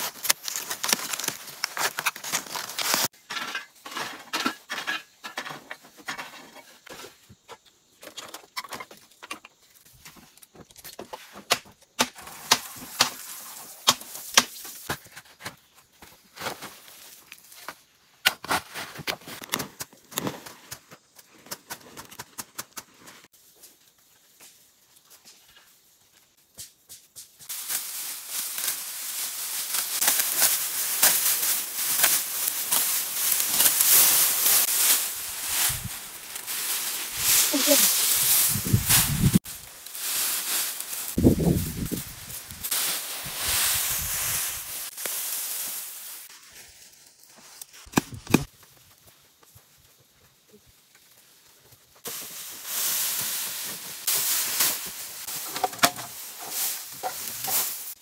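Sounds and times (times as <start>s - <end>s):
rustling and crackling: 0.0s - 3.1s, 27.4s - 58.0s
sharp pops: 47.8s - 48.5s.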